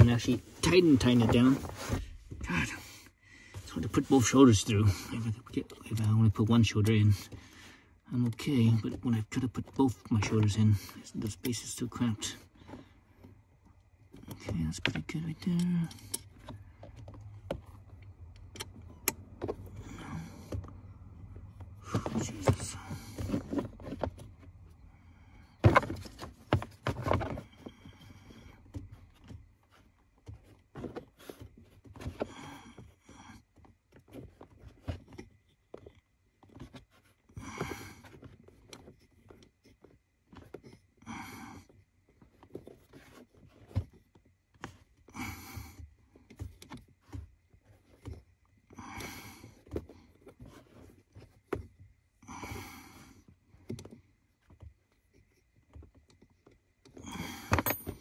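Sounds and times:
hand tools clicking and scraping: 21.8s - 24.4s, 55.2s - 58.0s.

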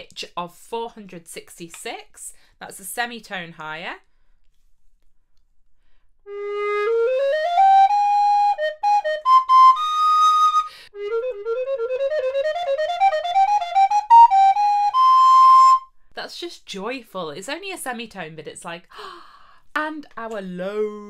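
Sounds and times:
alto recorder playing runs: 6.3s - 15.9s.

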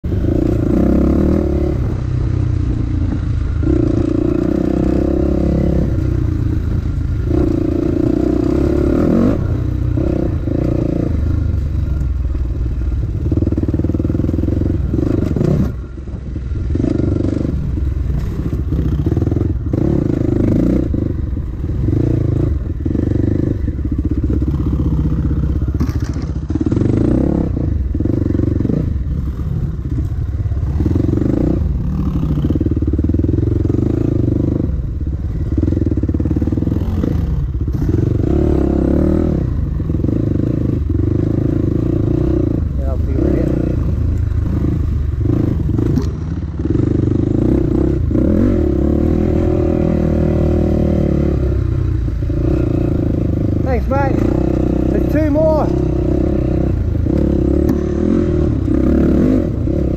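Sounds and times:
dirt bike engine revving: 0.0s - 59.9s
bike rattles and knocks: 23.6s - 27.2s.

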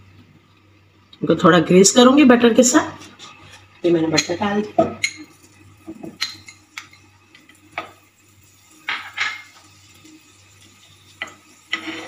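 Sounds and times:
metal spoon scraping frying pan: 8.8s - 9.7s, 11.2s - 12.0s.

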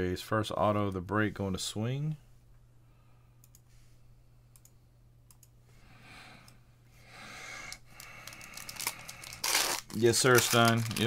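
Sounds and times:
trading cards clicking: 7.7s - 11.0s
cards sliding and rustling: 8.3s - 11.0s.

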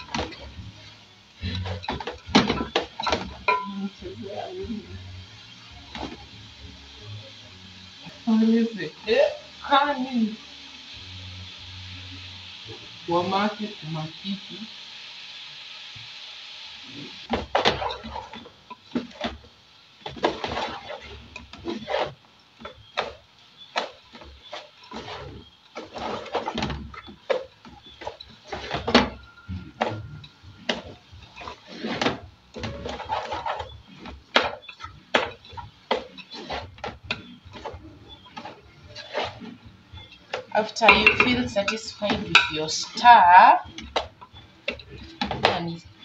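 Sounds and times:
spoon knocking metal pot: 1.8s - 3.8s, 40.7s - 43.1s
wooden spoon stirring cabbage: 17.4s - 46.0s.

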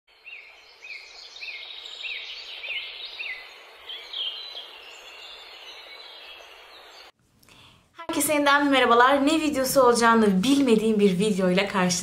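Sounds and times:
bird chirping: 0.1s - 7.2s.

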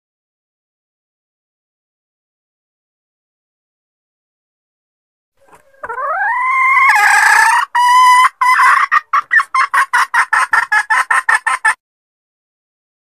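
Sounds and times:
hen cackling: 5.4s - 11.8s.

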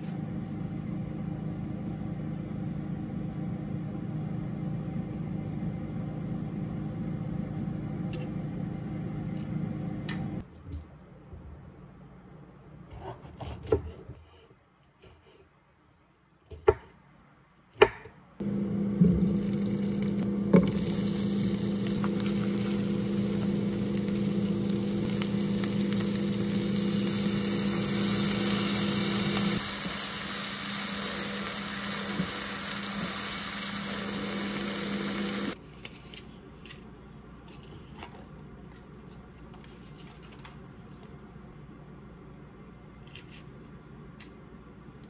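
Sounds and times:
food sizzling in a frying pan: 18.4s - 35.6s
steady hum: 18.4s - 35.6s.

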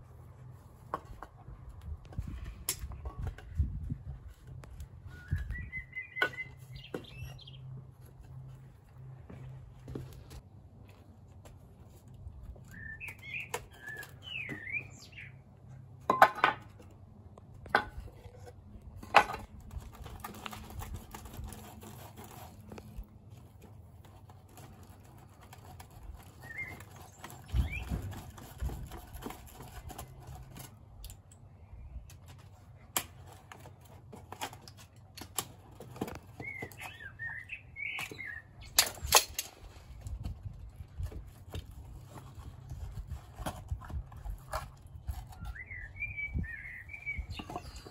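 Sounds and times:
small birds chirping: 5.1s - 8.5s, 12.6s - 15.5s, 24.2s - 30.7s, 36.0s - 39.1s, 44.3s - 47.9s.

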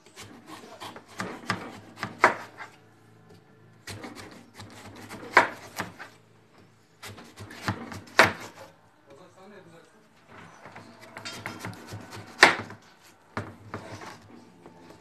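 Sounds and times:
knife slicing through watermelon: 0.1s - 2.7s, 7.0s - 8.6s.

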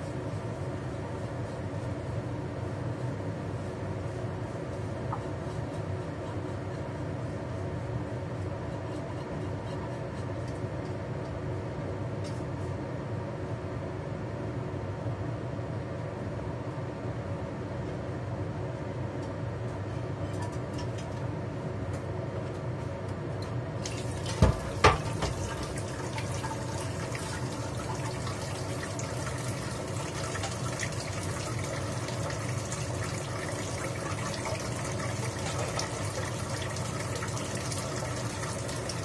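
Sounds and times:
tap running into metal sink: 23.8s - 31.0s.

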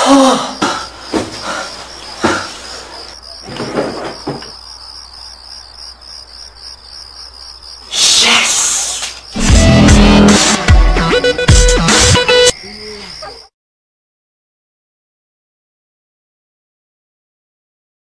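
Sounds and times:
crickets chirping: 0.0s - 13.5s
drawer opening rustles and knocks: 3.4s - 4.6s.

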